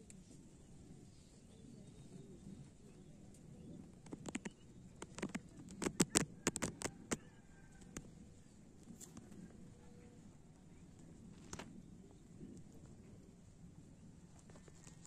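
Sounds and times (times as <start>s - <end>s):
sharp clicks and taps: 4.0s - 7.2s.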